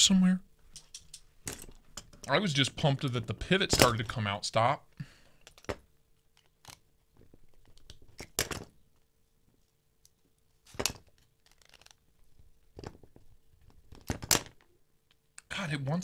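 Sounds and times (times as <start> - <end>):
small metal clicks and scrapes: 0.7 - 2.3.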